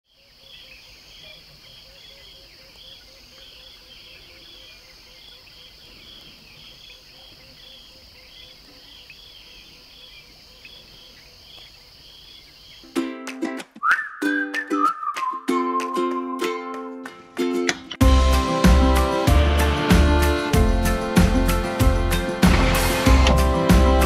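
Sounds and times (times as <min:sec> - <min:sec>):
insects droning: 0:00.1 - 0:13.0
insect chirp: 0:00.1 - 0:13.1.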